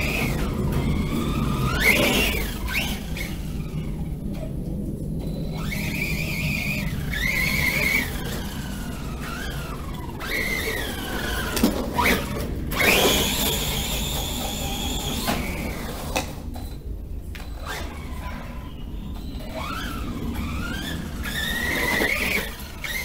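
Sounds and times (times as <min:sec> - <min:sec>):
electric motor whining: 0:00.0 - 0:23.0.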